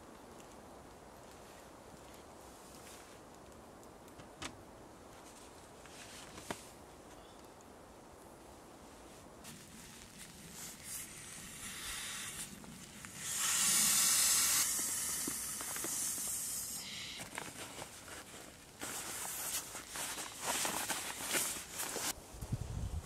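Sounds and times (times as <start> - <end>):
jacket fabric rustling: 5.1 - 6.8, 8.8 - 11.2, 17.2 - 22.2
breath blown into hands: 10.9 - 17.2.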